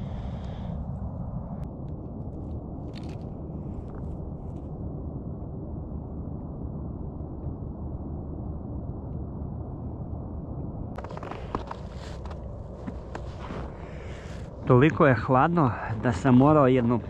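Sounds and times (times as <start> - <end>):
wind rumble on microphone: 0.0 - 17.0
footsteps crunching in snow: 11.0 - 14.5.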